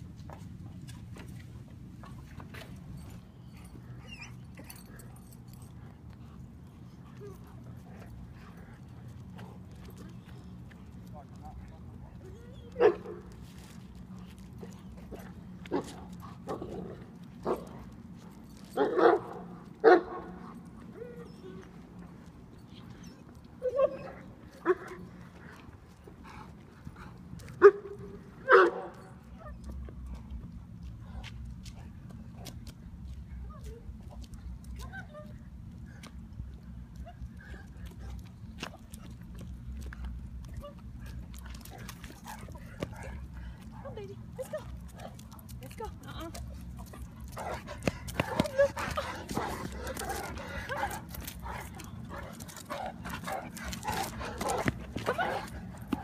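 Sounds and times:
dog whining: 21.0 - 21.7
steady low rumble: 24.2 - 56.0.

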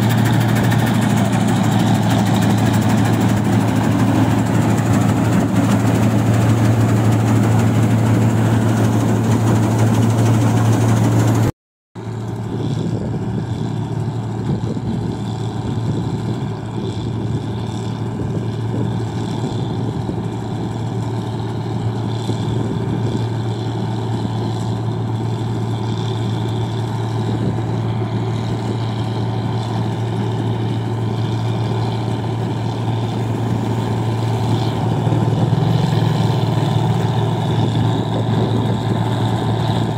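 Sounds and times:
engine low hum: 0.0 - 39.9
harvester machinery clatter: 0.0 - 39.9.

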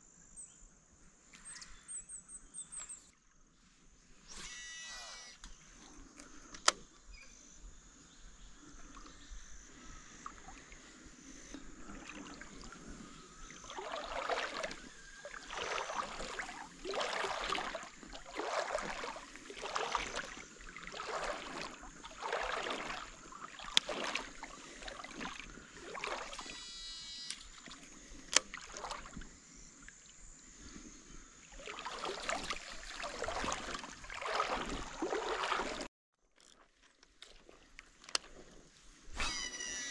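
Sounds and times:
kayak paddle swishing through water: 8.6 - 39.5.

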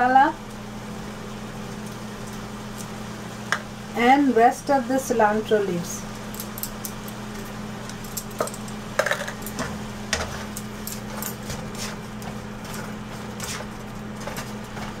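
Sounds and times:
steady low hum: 0.0 - 15.0
spatula scraping a pan: 9.6 - 15.0.

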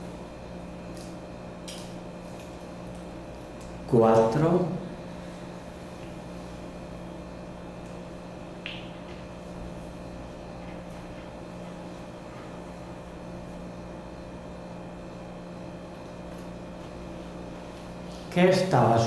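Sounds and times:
low hum with faint hiss: 0.0 - 19.0.

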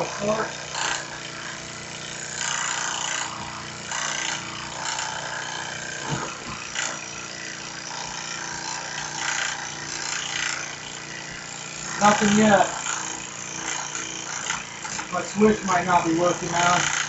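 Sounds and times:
starter motor spinning engine: 6.6 - 17.0.

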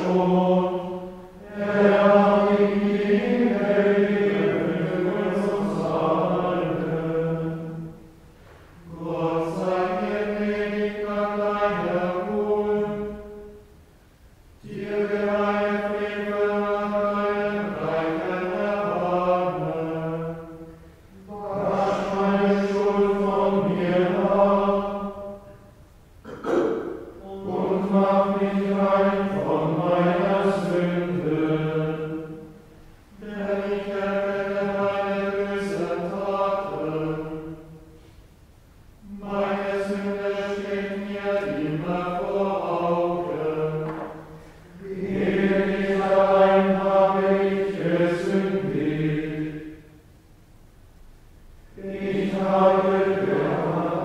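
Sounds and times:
men chanting plainchant: 0.0 - 7.9, 14.6 - 25.4, 26.2 - 32.4, 33.1 - 37.6, 39.0 - 49.6, 51.7 - 54.0.

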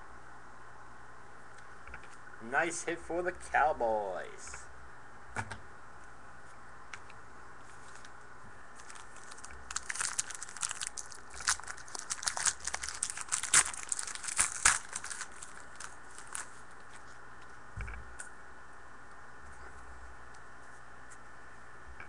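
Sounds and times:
foil wrapper tearing and crinkling: 8.8 - 17.1.

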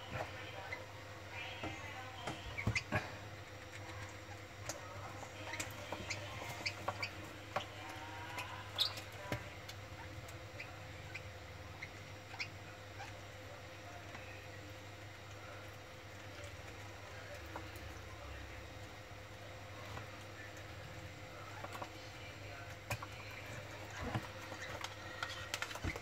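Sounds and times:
low steady hum: 0.0 - 26.0
chicks squeaky chirps: 8.4 - 9.1.

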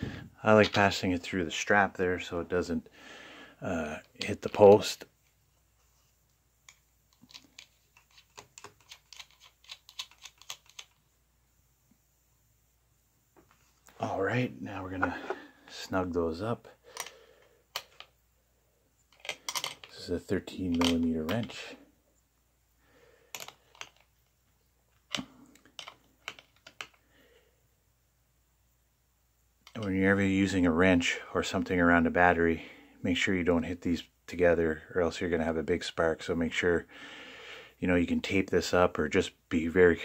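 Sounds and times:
small metal clicks and taps: 6.7 - 11.0.

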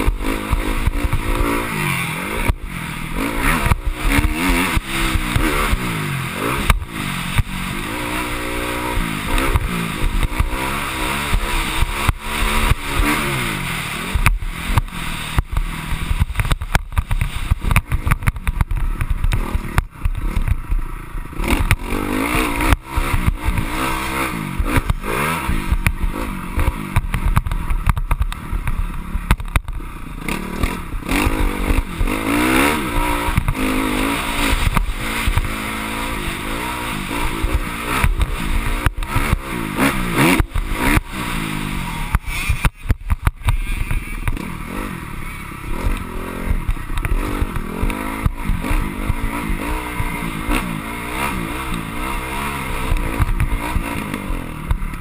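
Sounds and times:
motorcycle engine revving: 0.0 - 55.0
bike knocks and rattles: 14.1 - 44.5.

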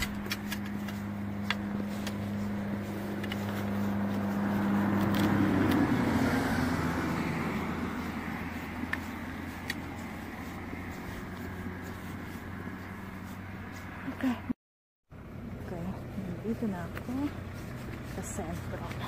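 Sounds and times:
car passing by: 1.8 - 14.4.

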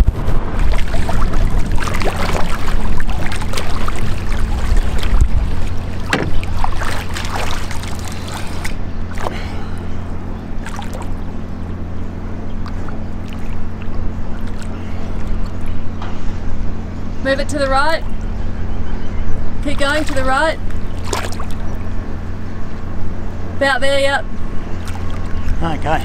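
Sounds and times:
water splashing: 0.0 - 11.8, 12.4 - 15.8, 19.6 - 22.0, 24.6 - 26.0
boat engine idling: 0.0 - 26.0.

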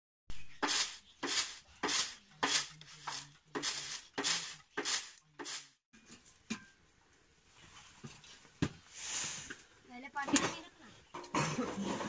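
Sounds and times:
metal pan scraping stone floor: 0.3 - 6.8, 10.2 - 12.0.

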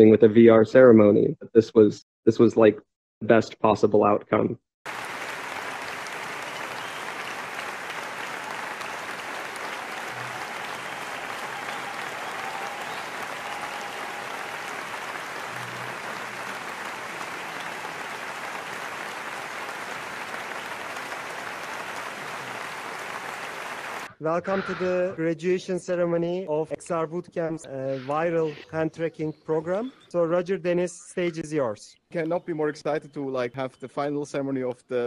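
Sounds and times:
audience applause: 4.9 - 24.1.

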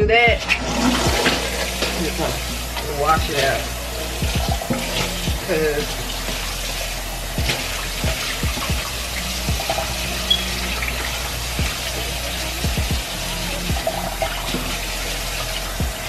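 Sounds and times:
dull low knocks: 0.0 - 1.3, 4.2 - 5.5, 7.4 - 8.9, 9.5 - 9.7, 12.6 - 13.1
faucet running into sink: 0.4 - 16.0
sponge wiping sink: 0.4 - 16.0.

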